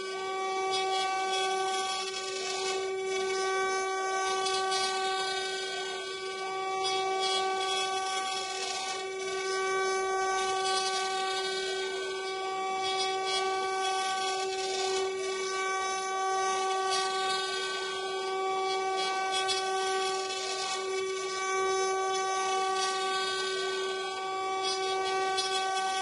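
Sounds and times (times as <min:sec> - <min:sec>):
router spindles whining: 0:00.0 - 0:26.0.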